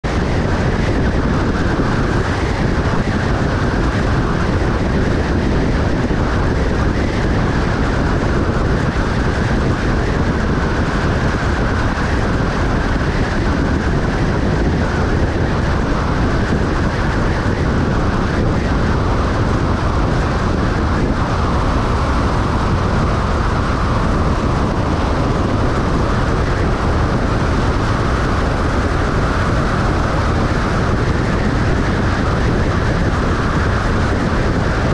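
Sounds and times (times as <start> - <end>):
air rushing past vehicle: 0.0 - 34.9.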